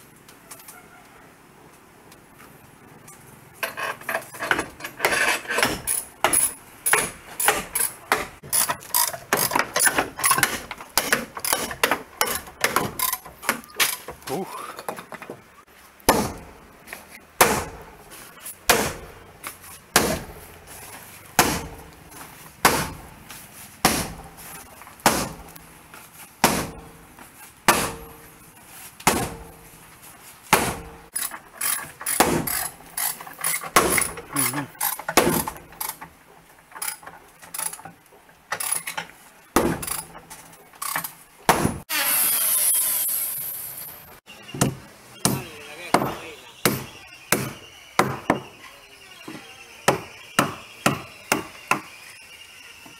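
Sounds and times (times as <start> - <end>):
hammer striking wood: 4.5 - 13.7, 16.0 - 16.6, 17.4 - 18.0, 18.6 - 19.2, 19.9 - 20.4, 21.4 - 22.0, 22.6 - 23.1, 23.8 - 24.4, 25.0 - 25.6, 26.4 - 27.0, 27.7 - 28.2, 29.0 - 29.6, 30.5 - 31.0, 32.0 - 32.7, 33.6 - 34.3, 35.1 - 35.6, 39.6 - 40.2, 41.5 - 41.8, 44.6 - 48.5, 49.3 - 51.9.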